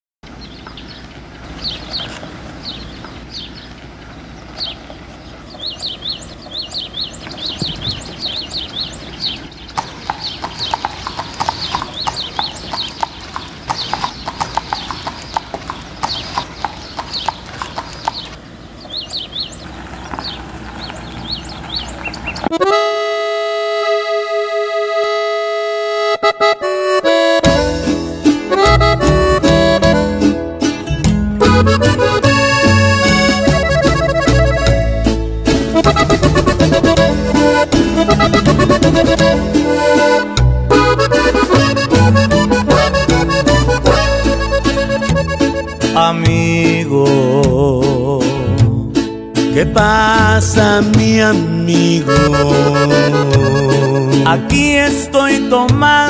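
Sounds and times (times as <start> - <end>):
steady background hiss: 0.3 - 10.4
hooves clip-clopping on brick: 0.5 - 22.8, 31.4 - 46.6
button accordion chord: 22.4 - 47.4, 48.3 - 56.0.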